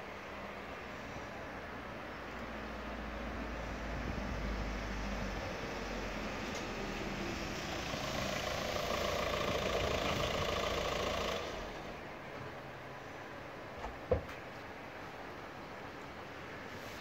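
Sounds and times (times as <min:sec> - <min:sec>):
background hiss: 0:00.0 - 0:13.8
engine idling: 0:07.0 - 0:12.0.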